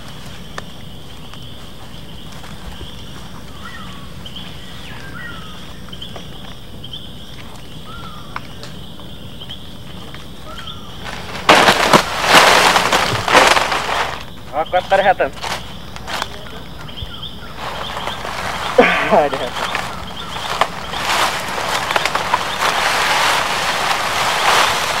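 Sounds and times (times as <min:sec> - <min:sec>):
high insect drone: 0:00.0 - 0:25.0
bird chirps: 0:00.3 - 0:11.1, 0:14.2 - 0:22.8
branches crashing: 0:10.5 - 0:16.6, 0:17.4 - 0:25.0.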